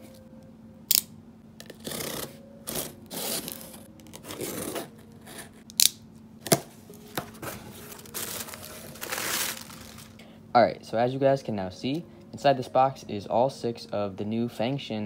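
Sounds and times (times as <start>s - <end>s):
knife slicing packing tape: 1.6s - 6.6s.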